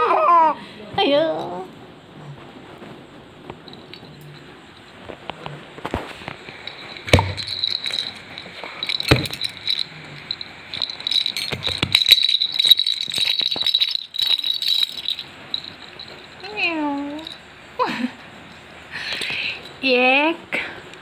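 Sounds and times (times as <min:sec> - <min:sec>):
baby rattle shaking: 0:06.5 - 0:17.4
sharp knocks: 0:07.1 - 0:07.6.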